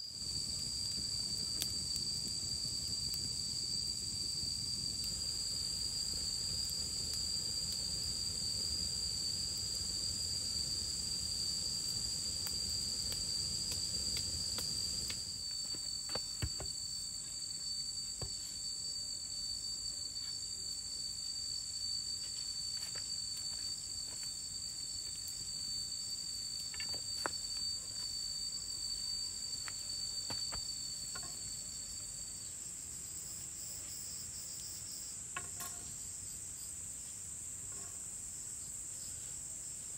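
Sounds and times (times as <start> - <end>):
campfire burning: 0.0 - 18.8, 20.1 - 33.6
insects droning high-pitched: 0.0 - 39.9.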